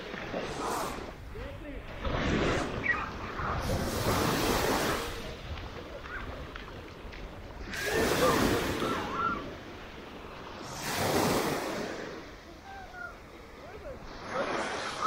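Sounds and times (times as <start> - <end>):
small waves washing up sand: 0.0 - 15.0
faint voices: 2.9 - 9.8, 12.0 - 15.0.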